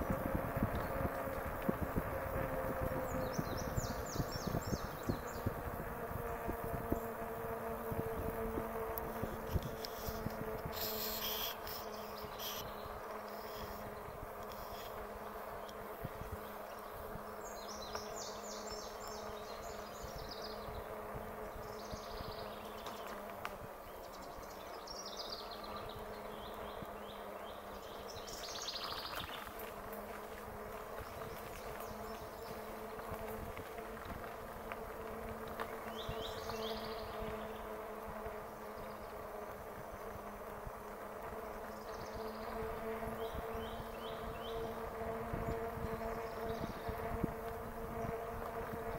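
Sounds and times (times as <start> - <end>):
electric motor whine: 0.0 - 18.1.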